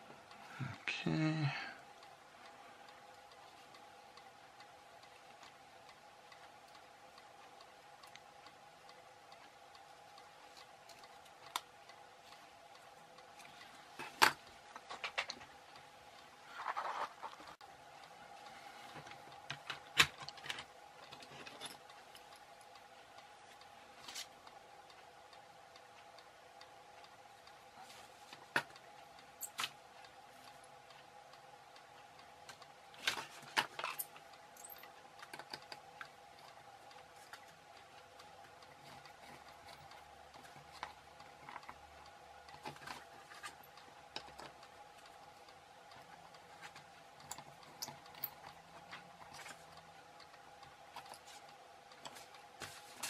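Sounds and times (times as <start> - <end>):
faint steady hum: 0.0 - 53.0.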